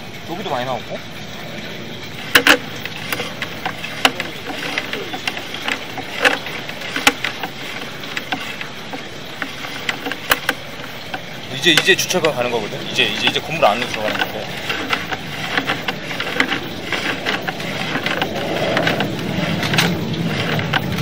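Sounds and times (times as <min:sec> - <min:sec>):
mechanical hum: 0:00.0 - 0:21.0
sharp clicks and knocks: 0:02.0 - 0:21.0.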